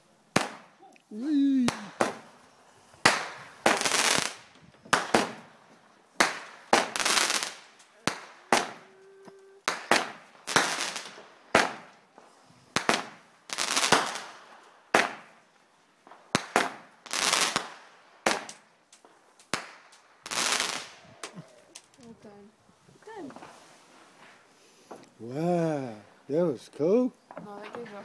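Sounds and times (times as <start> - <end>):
fireworks banging: 0.0 - 9.0, 9.6 - 15.4, 16.0 - 22.1, 27.2 - 28.0
crackling hiss of fireworks: 0.0 - 28.0.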